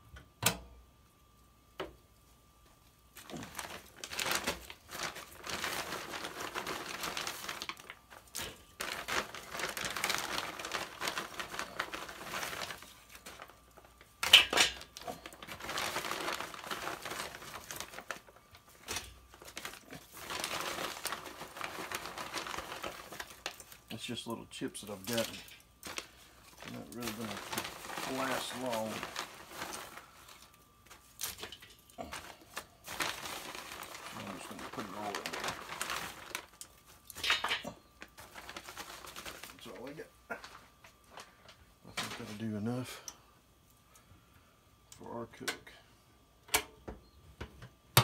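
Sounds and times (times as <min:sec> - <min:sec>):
plastic bag crinkling: 0:02.8 - 0:43.1
hands digging through wood chips: 0:15.1 - 0:24.2, 0:24.8 - 0:36.6.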